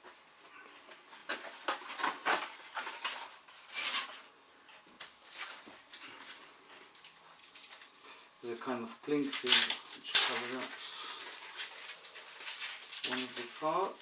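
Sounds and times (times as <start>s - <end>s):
paper and plastic rustling: 0.9s - 4.2s, 5.0s - 14.0s.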